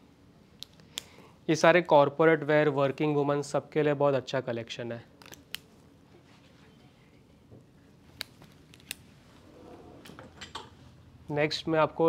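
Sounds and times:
faint rustling of fabric: 6.0 - 10.0.

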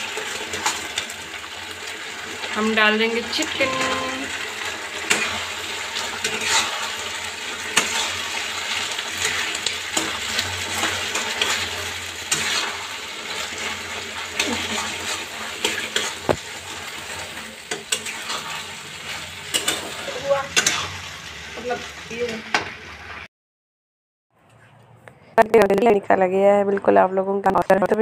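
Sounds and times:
gravy sizzling: 0.0 - 23.3
metal spatula scraping pan: 3.3 - 21.2.

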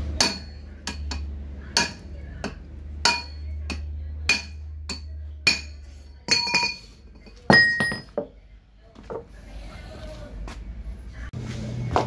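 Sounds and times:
hammer striking metal pipe: 0.2 - 6.8
metal tools clattering on concrete: 5.5 - 8.3.

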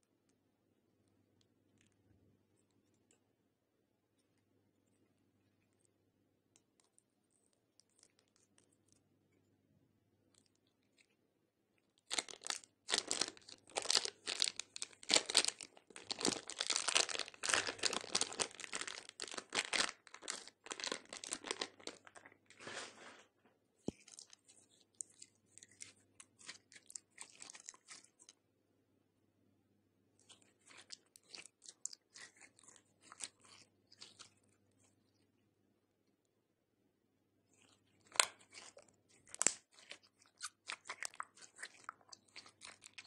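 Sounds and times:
slime crackling and squishing: 11.8 - 23.2, 23.8 - 28.4, 30.1 - 35.3, 37.5 - 43.0
plastic bag crinkling and tearing: 12.0 - 23.2, 38.0 - 43.0.

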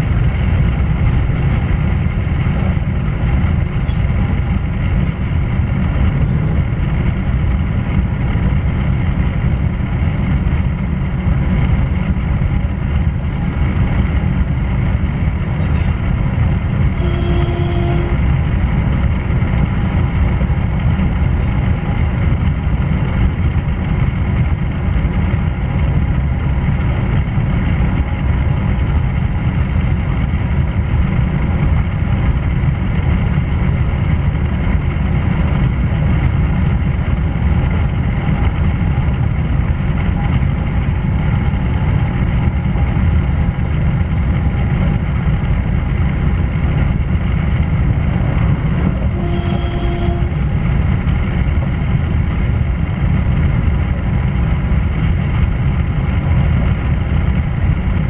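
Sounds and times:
traction inverter whine: 0.0 - 58.0
train wheels rumbling on rails: 0.0 - 58.0
short pitched tone: 17.0 - 18.2.

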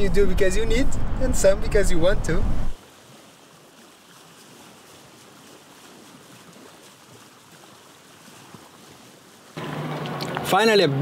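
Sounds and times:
gentle water at shore: 2.8 - 11.0.

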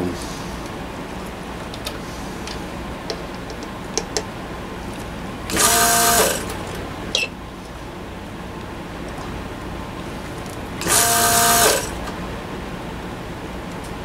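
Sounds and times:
electric pump buzzing: 5.4 - 7.3, 10.7 - 12.2.

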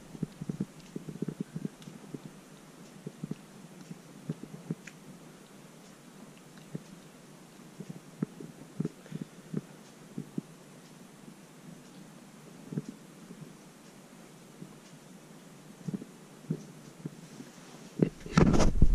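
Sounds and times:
kitten licking fur: 0.0 - 10.6.

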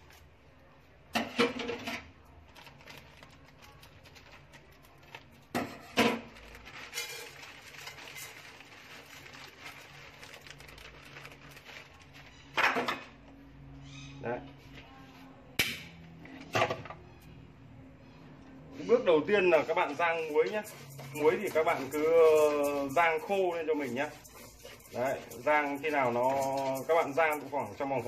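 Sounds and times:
salt grains rattling on metal pot: 3.4 - 12.5, 19.2 - 28.0.

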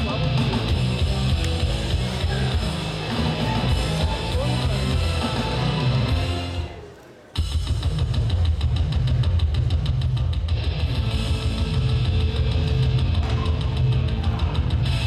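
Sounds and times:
heavy rock music: 0.0 - 6.8, 7.4 - 15.0.

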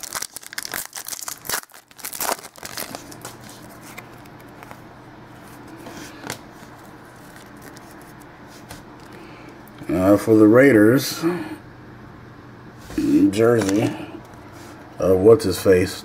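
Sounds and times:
trading cards rustling and snapping: 0.0 - 4.9, 5.5 - 9.2, 13.5 - 14.0
low steady hum: 0.0 - 16.0.

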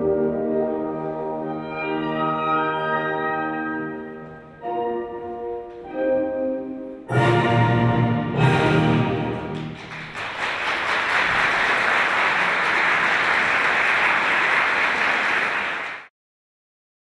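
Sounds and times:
orchestral chord: 0.0 - 9.8
audience applause: 9.4 - 16.1.

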